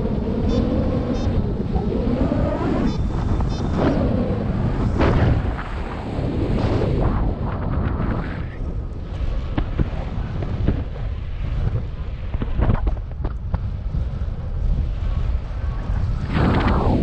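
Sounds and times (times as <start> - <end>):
wind buffeting microphone: 0.0 - 17.0
sharp wind pops: 1.2 - 8.7, 9.4 - 13.7, 16.2 - 17.0.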